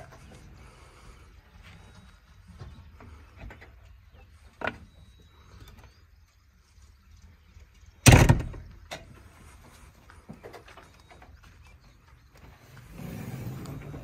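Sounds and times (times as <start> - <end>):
door slamming shut: 8.0 - 8.7.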